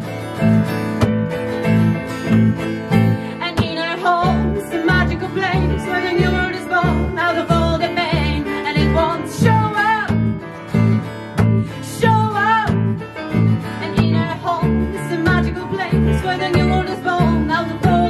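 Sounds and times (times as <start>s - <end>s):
electric bass guitar: 0.0s - 18.0s
strummed acoustic guitar: 0.0s - 18.0s
woman singing wordless melody: 3.3s - 10.4s, 11.8s - 13.0s, 13.8s - 18.0s.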